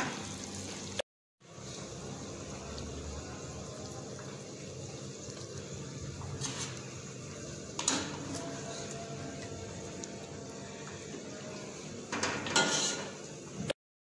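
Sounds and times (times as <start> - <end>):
steady kitchen hum: 0.0 - 13.8
food scraped from a pan: 6.4 - 6.8, 12.5 - 13.2
cookware clinking: 12.1 - 13.2.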